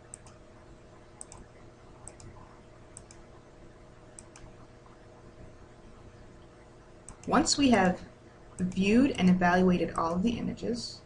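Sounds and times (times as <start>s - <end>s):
computer mouse clicks: 0.0s - 0.4s, 1.2s - 3.3s, 4.1s - 4.6s, 6.4s - 7.4s, 8.6s - 9.2s
faint steady hum: 0.0s - 11.0s.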